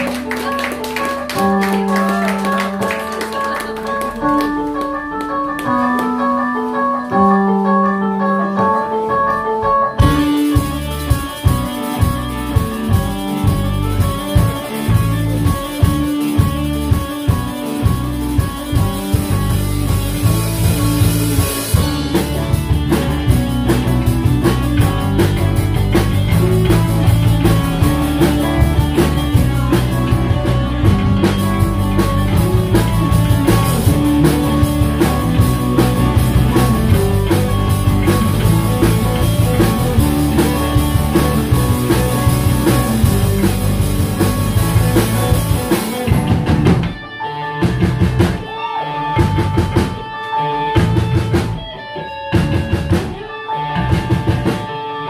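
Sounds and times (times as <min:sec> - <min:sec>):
drum kit: 0:00.0 - 0:54.8
rock band playing: 0:00.0 - 0:55.0.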